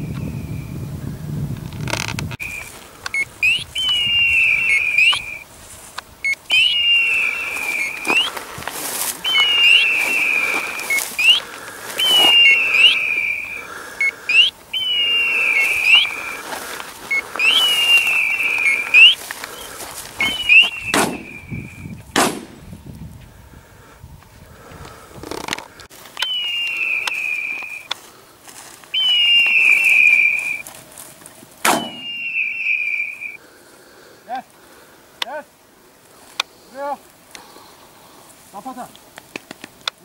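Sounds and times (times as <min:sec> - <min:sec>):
electronic hawk-scream beeper call: 0:02.4 - 0:05.4, 0:06.2 - 0:08.4, 0:09.2 - 0:19.2, 0:20.2 - 0:21.9, 0:28.9 - 0:30.7, 0:31.7 - 0:33.4
sharp bangs: 0:20.6 - 0:21.4, 0:22.1 - 0:22.6, 0:31.6 - 0:32.2.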